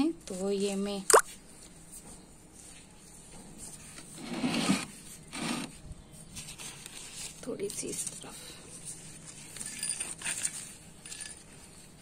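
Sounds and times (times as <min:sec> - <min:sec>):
hand scraping soil in a pot: 0:02.6 - 0:08.1.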